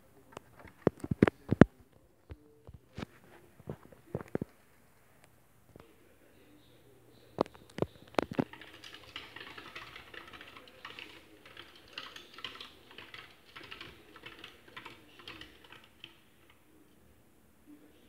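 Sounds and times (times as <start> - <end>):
chipmunk clicking and tapping on wood: 7.4 - 16.7.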